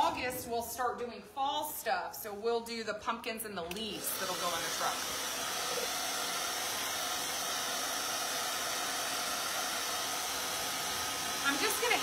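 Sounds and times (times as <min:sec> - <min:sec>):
hair dryer blowing: 0:03.7 - 0:12.0.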